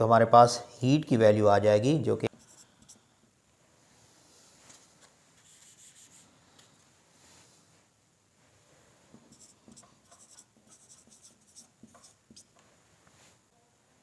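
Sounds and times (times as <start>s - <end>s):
marker pen squeaking on whiteboard: 9.3s - 12.6s.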